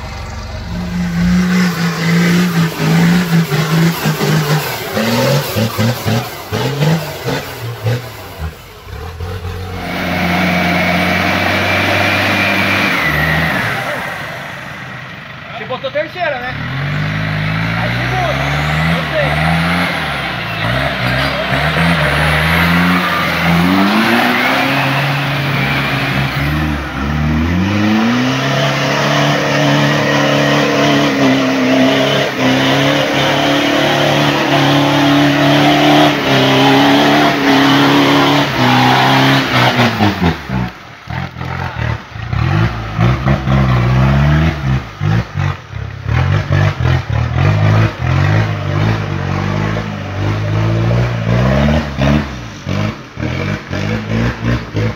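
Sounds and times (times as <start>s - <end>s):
engine revving hard: 0.0s - 54.9s.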